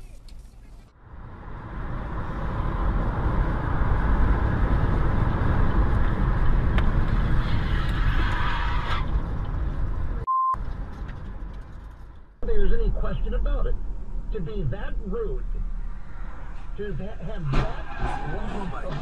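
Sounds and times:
car road and engine noise: 0:00.0 - 0:19.0
short single-pitched beep: 0:10.3 - 0:10.6.

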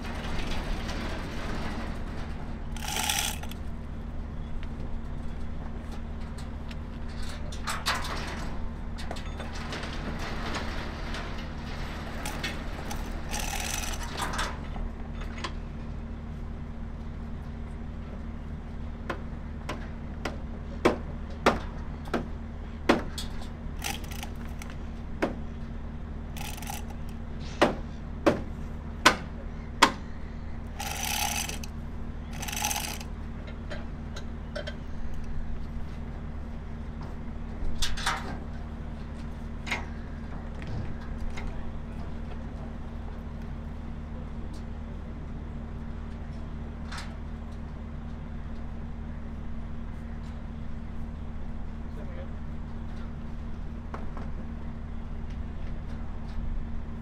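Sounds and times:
chain rattle: 0:02.8 - 0:03.6, 0:12.2 - 0:14.1, 0:23.8 - 0:24.7, 0:26.4 - 0:27.1, 0:30.8 - 0:31.7, 0:32.4 - 0:33.1.

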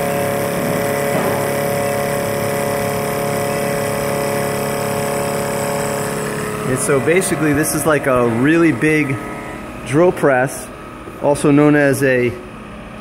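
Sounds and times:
even machining noise: 0:00.0 - 0:12.6
milling cutter whine: 0:00.0 - 0:13.0.

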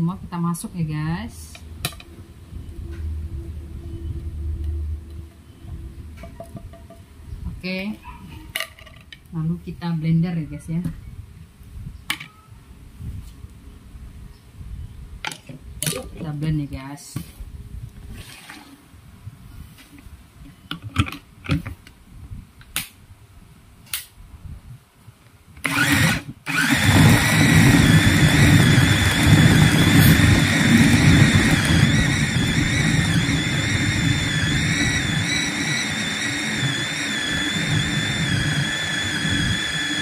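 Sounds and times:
chopper motor whining: 0:25.7 - 0:40.0.

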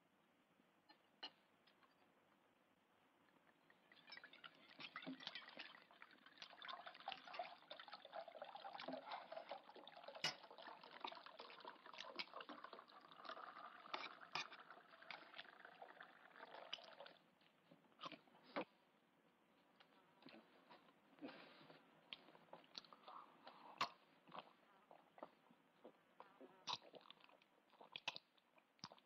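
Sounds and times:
liquid pouring into a pot: 0:03.6 - 0:17.2.

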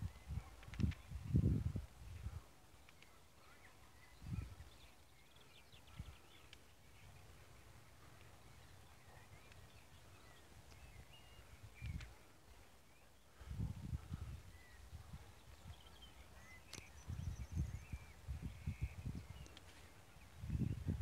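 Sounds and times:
faint birdsong chirps: 0:00.0 - 0:21.0.

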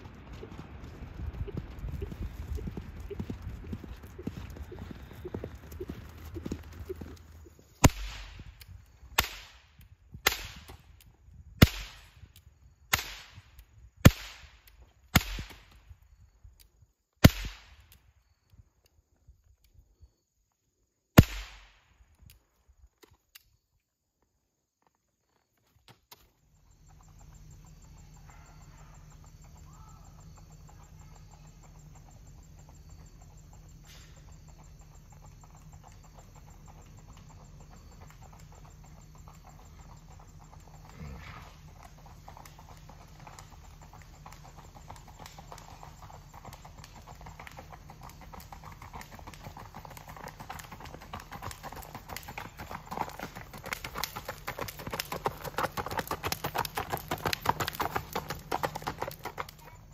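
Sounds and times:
hoofbeats on gravel: 0:00.0 - 0:09.2, 0:24.2 - 0:59.9.

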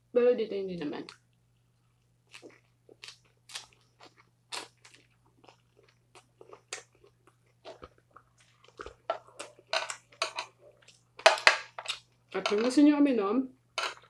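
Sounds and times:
chewing lettuce crunches: 0:01.8 - 0:09.7.

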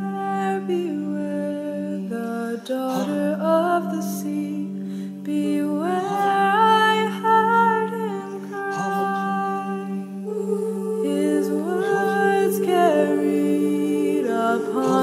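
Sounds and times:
low vocal drone: 0:00.0 - 0:04.6, 0:05.2 - 0:15.0
choir humming chords: 0:05.2 - 0:15.0.

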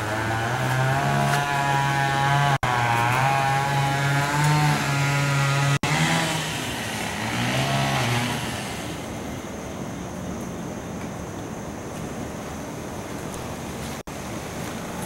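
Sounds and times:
chainsaw engine running: 0:00.0 - 0:09.4.

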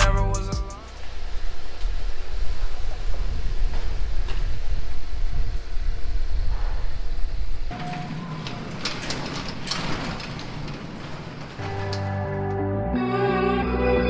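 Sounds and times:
garage door rattling and clicking: 0:07.6 - 0:12.5.

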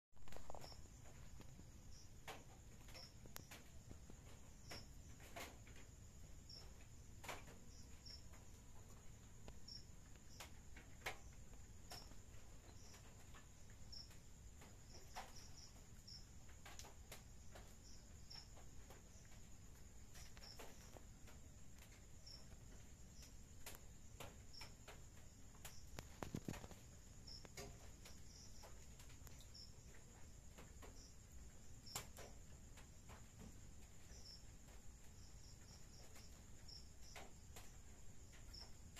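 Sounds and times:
crickets trilling: 0:00.2 - 0:38.9
short high cricket chirps: 0:00.2 - 0:38.9
faint clicks: 0:20.1 - 0:31.1.

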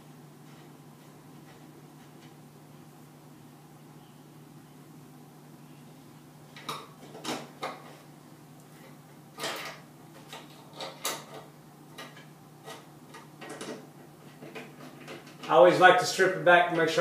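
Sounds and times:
steady low hum: 0:00.0 - 0:17.0
wire and tools rattling: 0:08.7 - 0:15.8.

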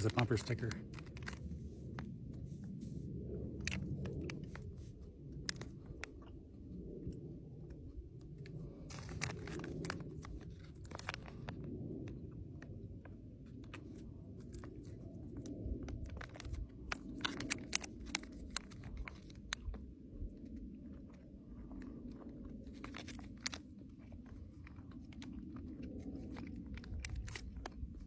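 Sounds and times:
foil wrapper crinkling: 0:00.0 - 0:01.6, 0:08.7 - 0:11.7, 0:16.1 - 0:19.7
steady low rumble: 0:00.0 - 0:28.0
chewing: 0:13.7 - 0:19.8, 0:20.4 - 0:28.0.

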